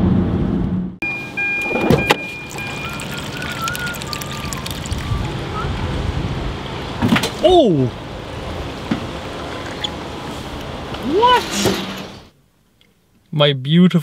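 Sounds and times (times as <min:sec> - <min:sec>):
short high beep: 0:01.0 - 0:03.9
wavering high tone: 0:01.0 - 0:05.3.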